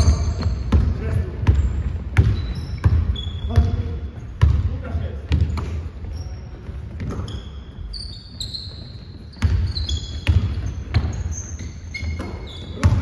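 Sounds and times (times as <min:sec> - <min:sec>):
basketball bouncing on hardwood floor: 0:00.0 - 0:03.8, 0:04.4 - 0:05.8, 0:08.7 - 0:11.4, 0:12.0 - 0:13.0
sneakers squeaking on court: 0:00.0 - 0:13.0.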